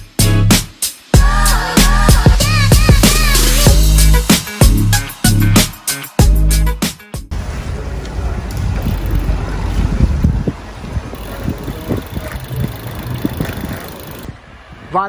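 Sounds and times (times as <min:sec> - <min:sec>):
hiss of bicycle ride: 0:00.6 - 0:05.0, 0:07.4 - 0:14.6
wind buffeting microphone: 0:07.3 - 0:15.0.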